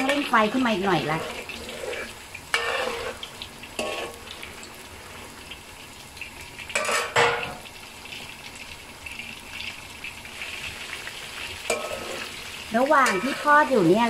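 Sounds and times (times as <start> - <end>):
metal spatula scraping wok: 0.0 - 4.4, 6.8 - 7.6, 11.6 - 13.9
meat deep-frying in oil: 0.0 - 14.0.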